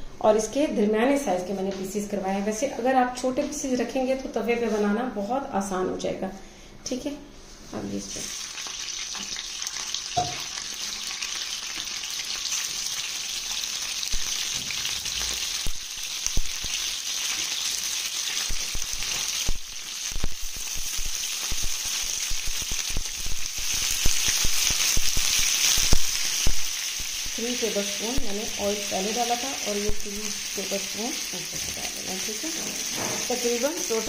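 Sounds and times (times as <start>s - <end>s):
chicken sizzling in hot oil: 8.1s - 34.0s.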